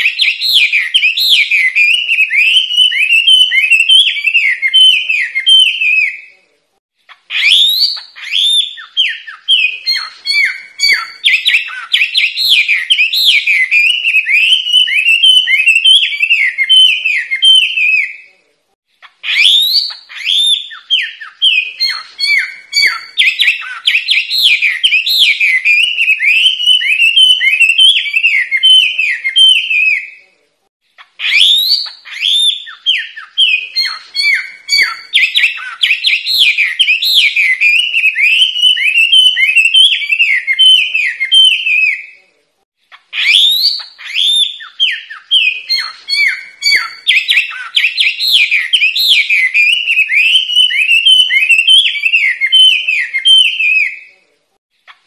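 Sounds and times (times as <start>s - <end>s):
bird singing whistled notes: 0.0s - 6.4s, 7.3s - 18.3s, 19.2s - 30.2s, 31.2s - 42.2s, 43.2s - 54.2s.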